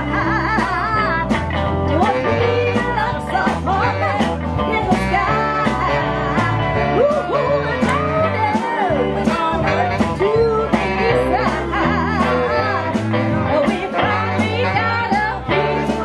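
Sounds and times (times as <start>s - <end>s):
drum kit beat: 0.0s - 16.0s
electric bass line: 0.0s - 16.0s
women singing: 0.0s - 16.0s.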